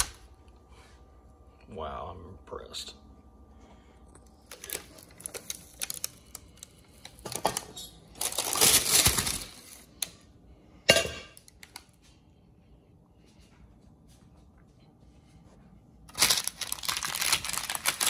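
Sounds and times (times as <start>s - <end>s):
parchment paper rustling: 4.5s - 7.3s, 16.1s - 18.0s.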